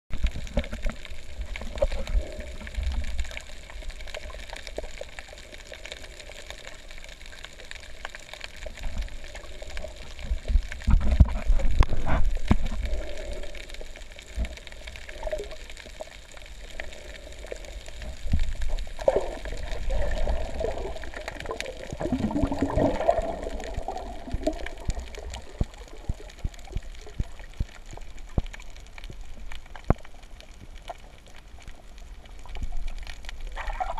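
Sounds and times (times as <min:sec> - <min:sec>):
diver's exhaled bubbles gurgling: 0:00.1 - 0:30.3, 0:31.1 - 0:33.9
low underwater rumble: 0:00.1 - 0:33.9
faint clicks: 0:22.9 - 0:33.6.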